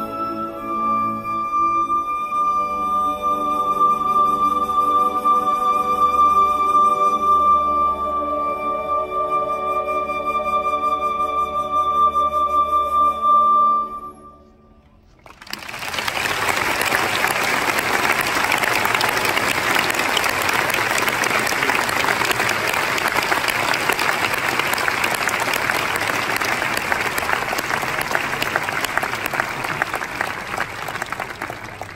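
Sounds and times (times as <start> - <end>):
audience applauding: 15.2 - 31.9.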